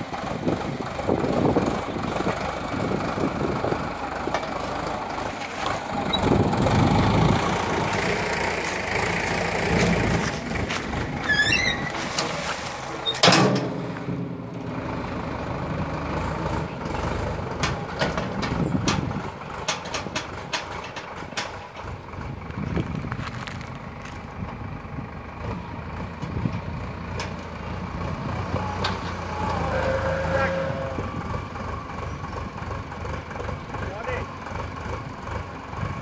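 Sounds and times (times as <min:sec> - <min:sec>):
backhoe clanking and knocking: 0:00.0 - 0:36.0
tractor engine running: 0:00.0 - 0:36.0.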